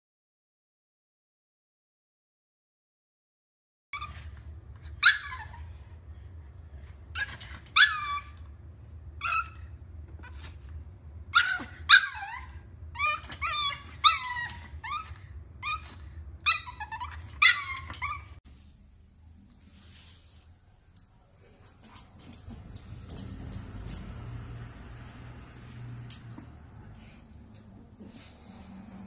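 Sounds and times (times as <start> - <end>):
puppy yipping and barking: 4.9 - 5.8, 7.2 - 8.5, 9.2 - 9.6, 11.3 - 18.4.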